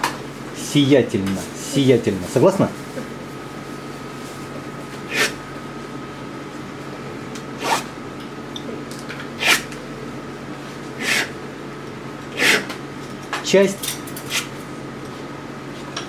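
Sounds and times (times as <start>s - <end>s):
palette knife scraping paint: 9.4s - 9.7s, 12.4s - 12.7s.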